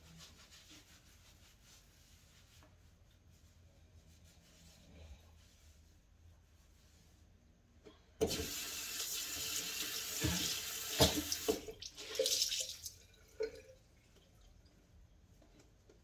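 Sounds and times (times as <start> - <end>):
tap water running into sink: 8.2 - 13.7.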